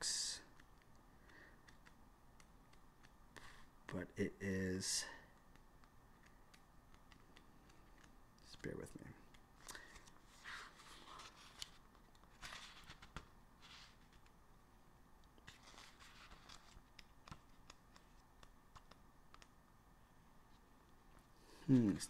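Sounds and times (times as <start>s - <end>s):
book pages flicking: 15.4s - 19.6s.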